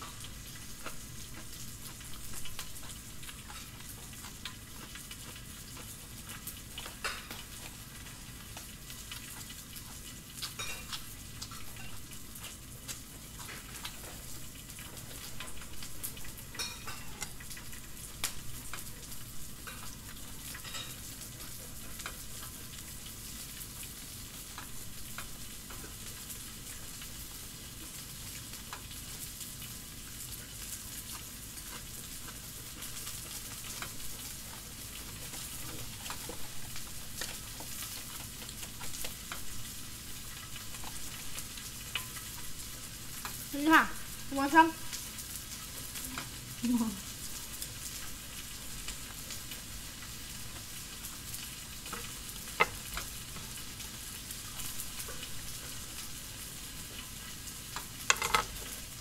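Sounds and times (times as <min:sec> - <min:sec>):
vegetables sizzling on a griddle: 0:00.0 - 0:59.0.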